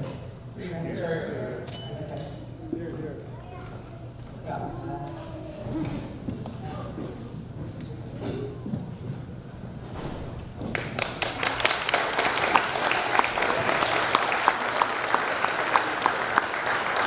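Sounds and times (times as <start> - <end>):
crowd applauding: 10.7 - 17.0
murmur of guests: 11.2 - 17.0.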